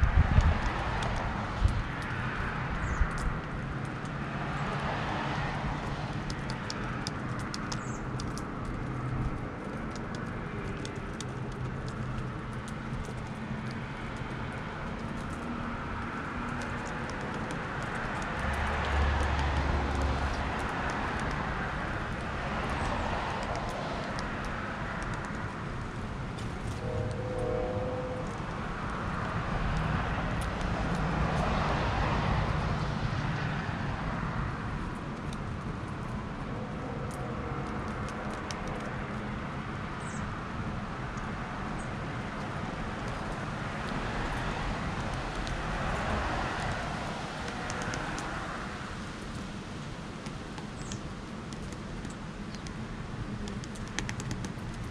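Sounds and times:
cars passing: 0.0 - 54.9
low rumble: 26.4 - 32.6.

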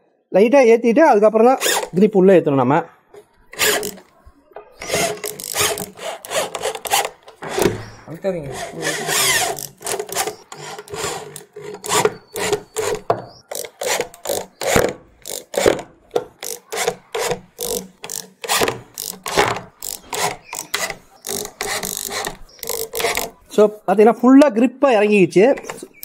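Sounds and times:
electric drill driving screws: 1.6 - 2.0, 3.5 - 4.1, 4.8 - 23.4
screw grinding into wood: 1.6 - 2.0, 3.2 - 4.2, 4.8 - 23.5, 25.5 - 26.0.

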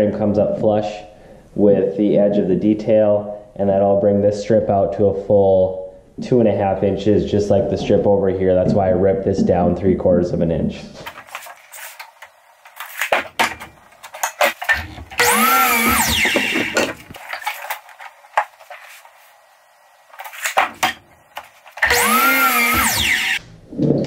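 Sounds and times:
miter saw motor whining: 15.2 - 16.9, 21.8 - 23.4.

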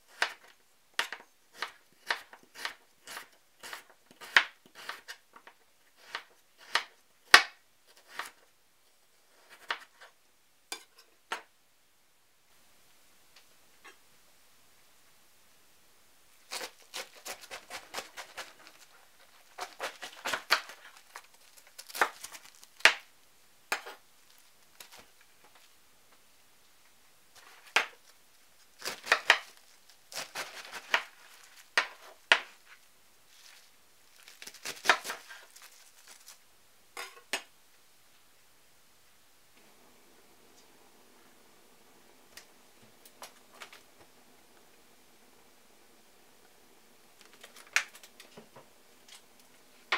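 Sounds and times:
knife cutting cabbage: 0.1 - 8.4, 16.5 - 23.0, 28.7 - 32.7, 34.2 - 36.4.

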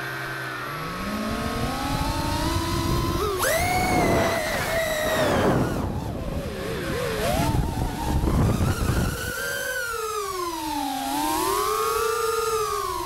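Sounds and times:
quadcopter motors whining: 0.0 - 13.0
wind rumble: 1.0 - 9.5.

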